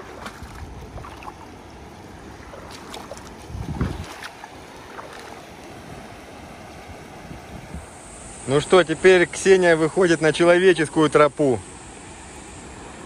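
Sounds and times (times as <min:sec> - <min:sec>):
feet splashing through water: 0:00.0 - 0:07.4
river rushing: 0:00.0 - 0:13.0.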